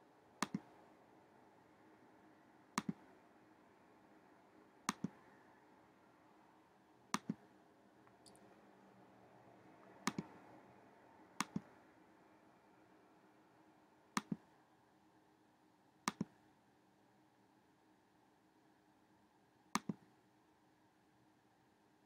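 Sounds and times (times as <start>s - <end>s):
faint room hum: 0.0s - 22.0s
mouse button clicking: 0.4s - 0.7s, 2.8s - 3.0s, 4.9s - 5.1s, 10.0s - 10.3s, 11.4s - 11.7s, 16.1s - 16.3s.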